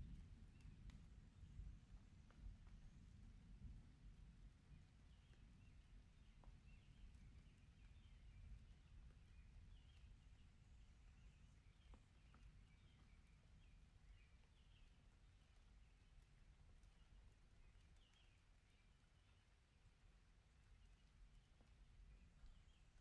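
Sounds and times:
soft ticks: 11.8s - 13.2s, 14.8s - 23.0s.

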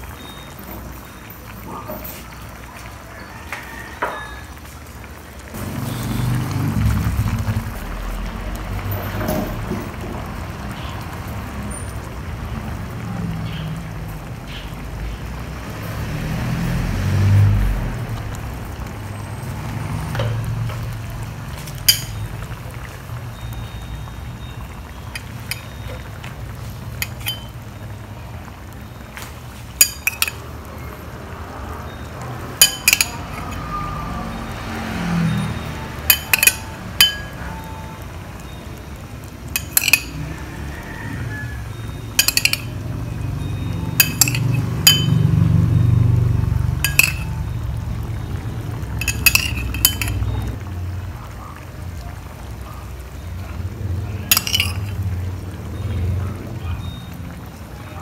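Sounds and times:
metal spoon clinking on pot: 21.6s - 22.4s, 25.0s - 26.2s, 26.9s - 27.7s, 29.8s - 30.6s, 32.6s - 33.8s, 36.0s - 37.8s, 39.5s - 40.3s, 42.0s - 45.4s, 46.8s - 47.5s, 49.0s - 50.6s, 54.2s - 55.2s.

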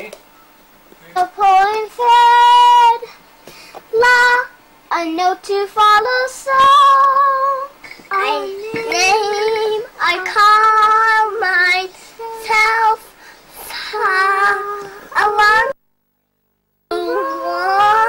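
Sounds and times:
young children singing: 4.0s - 13.1s, 13.7s - 15.8s, 16.9s - 18.0s.

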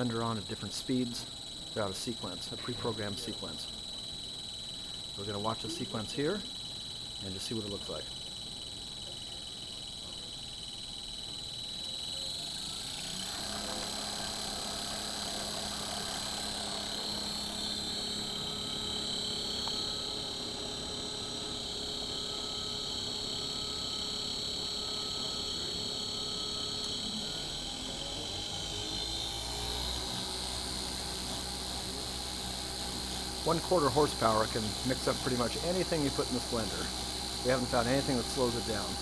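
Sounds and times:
blender motor humming and whining: 10.2s - 39.0s.

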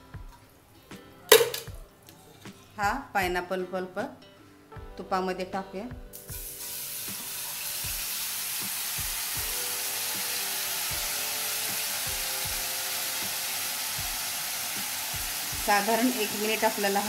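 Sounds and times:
fruit pulp sizzling in oil: 6.1s - 17.0s.

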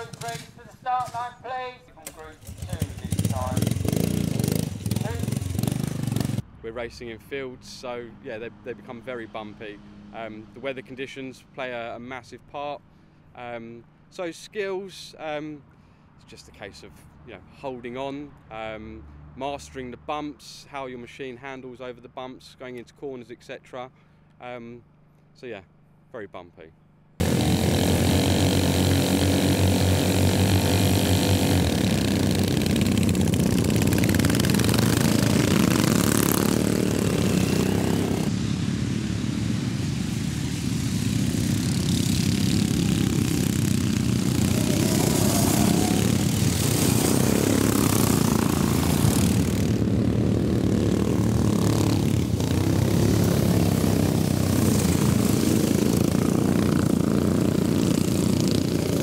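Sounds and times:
lawnmower engines racing: 0.0s - 1.3s, 2.0s - 6.5s, 27.2s - 59.0s.

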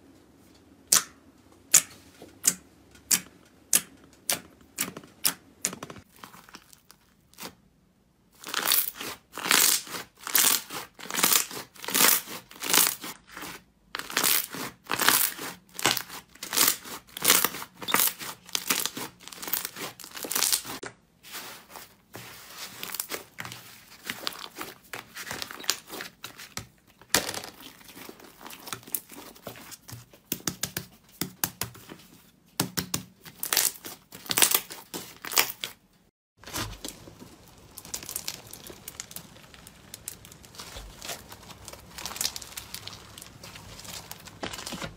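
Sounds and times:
slime squishing and popping: 36.4s - 44.9s.

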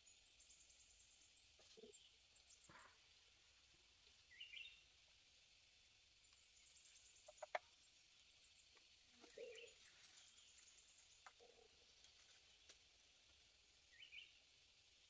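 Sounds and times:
distant bird chirps: 6.3s - 12.8s.

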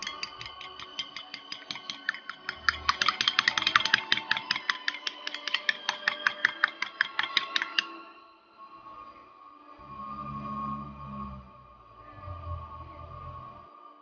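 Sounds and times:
spoon clinking against bowl: 0.0s - 7.9s.

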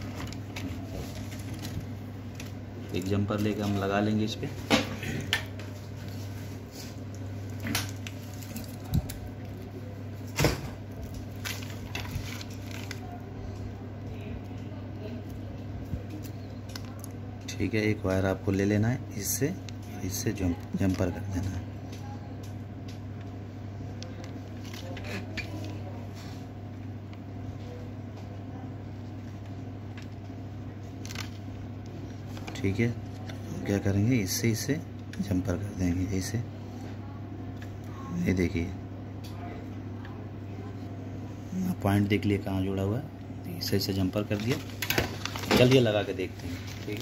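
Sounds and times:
steady low hum: 0.0s - 47.0s.

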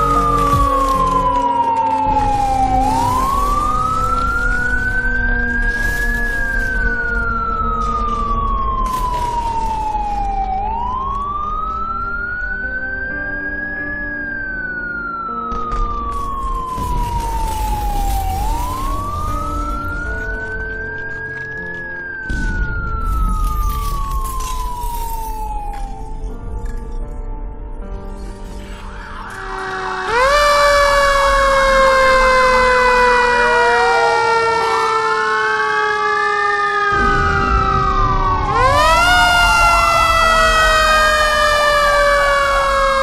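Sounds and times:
rumble and rushing noise: 0.0s - 13.3s, 36.9s - 41.0s
wailing siren: 0.0s - 26.5s, 28.4s - 43.0s.

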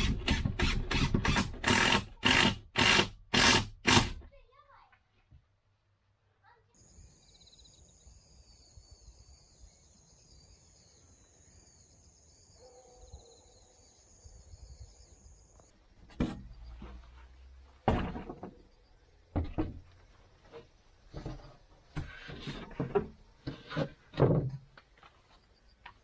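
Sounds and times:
high-pitched insect chorus: 6.8s - 15.7s
plywood sheet knocking against crate: 17.8s - 18.6s.

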